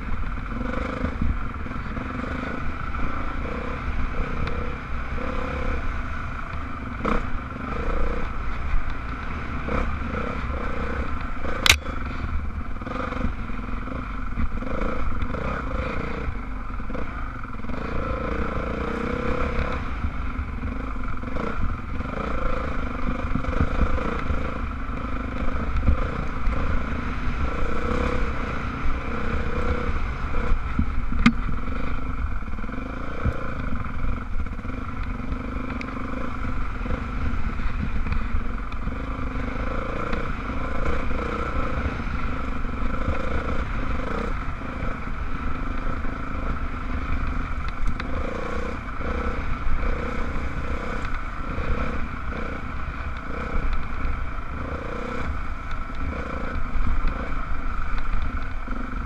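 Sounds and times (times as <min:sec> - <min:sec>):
dirt bike engine running: 0:00.0 - 0:59.0
sharp click: 0:11.6 - 0:11.9.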